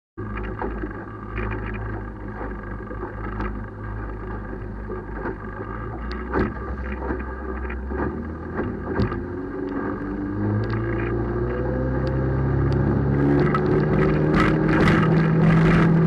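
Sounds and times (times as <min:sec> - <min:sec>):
outboard motor running: 0:00.2 - 0:16.0
sharp engine knocks: 0:04.8 - 0:10.0, 0:13.2 - 0:16.0.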